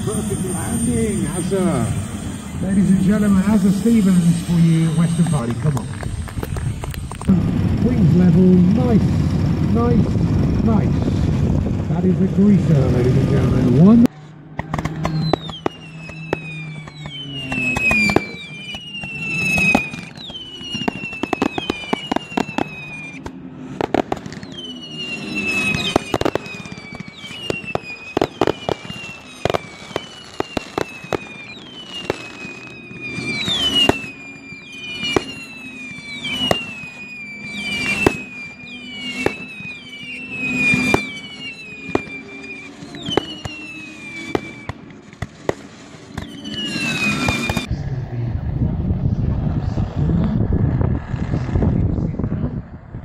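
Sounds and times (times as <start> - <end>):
whistling fireworks: 0.0 - 47.9, 48.9 - 53.0
firework cracks and bangs: 4.4 - 7.4, 14.6 - 47.7.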